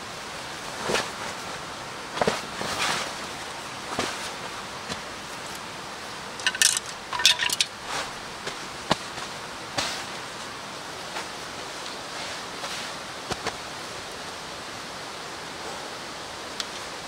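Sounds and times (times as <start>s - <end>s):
steady background hiss: 0.0s - 17.0s
sharp clinks and scrapes: 6.4s - 7.7s.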